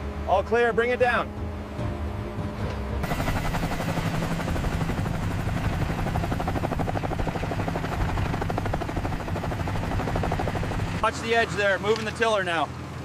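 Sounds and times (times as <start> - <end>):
engine hum: 0.0 - 13.0
helicopter rotor chopping: 3.0 - 13.0.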